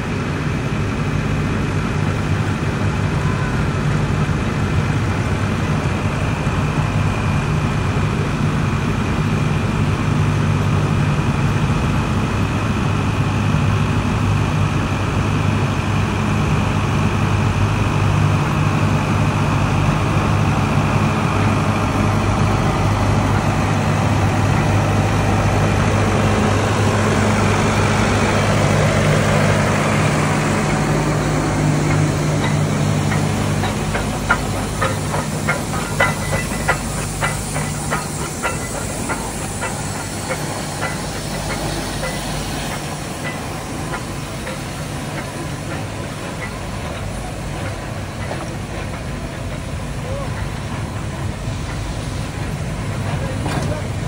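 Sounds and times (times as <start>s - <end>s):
steam locomotive low hum: 0.0s - 54.0s
hiss of steam: 20.2s - 54.0s.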